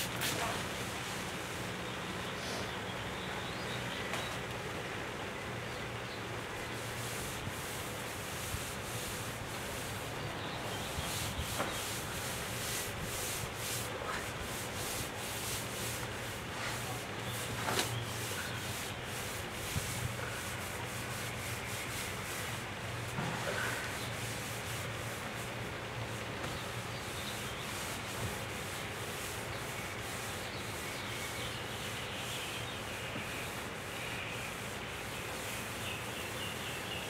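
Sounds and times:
cloth rubbing on wooden table: 0:10.8 - 0:25.5.

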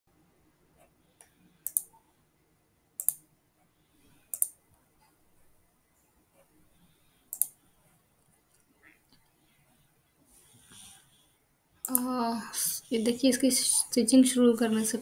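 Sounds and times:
mouse buttons clicking: 0:01.2 - 0:02.0, 0:03.0 - 0:03.3, 0:04.3 - 0:04.6, 0:07.3 - 0:07.6, 0:11.8 - 0:12.1.

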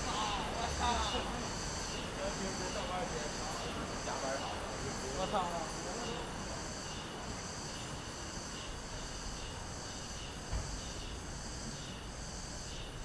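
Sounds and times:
cicadas buzzing: 0:00.0 - 0:13.0
street hum: 0:00.0 - 0:13.0
low thump: 0:10.4 - 0:11.0.

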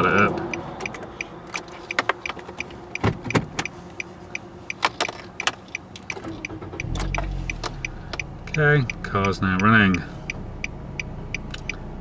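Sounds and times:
car engine running: 0:02.6 - 0:12.0
sharp clicks: 0:04.7 - 0:10.7.

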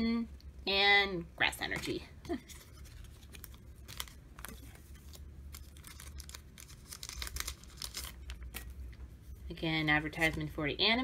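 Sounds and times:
wrapper crinkling and tearing: 0:02.5 - 0:08.8.

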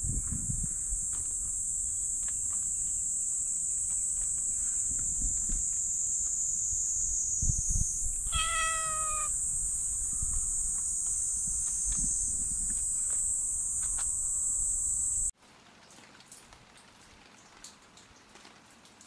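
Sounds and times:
steady high-pitched hiss: 0:00.0 - 0:15.3
cat meowing: 0:08.3 - 0:09.4.

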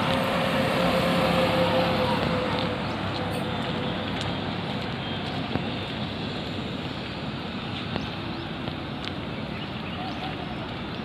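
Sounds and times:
distant road traffic hum: 0:00.0 - 0:11.0.

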